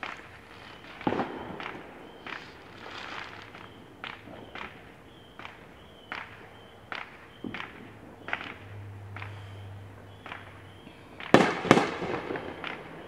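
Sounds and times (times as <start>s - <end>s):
fireworks bangs echoing: 0.0s - 13.0s.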